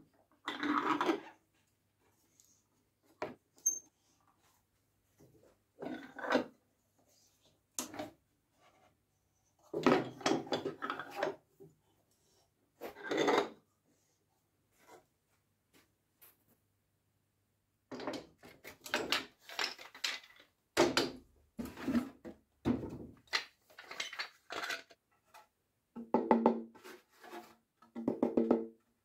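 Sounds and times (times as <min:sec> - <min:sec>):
wood scraping and knocking: 0:20.8 - 0:25.5.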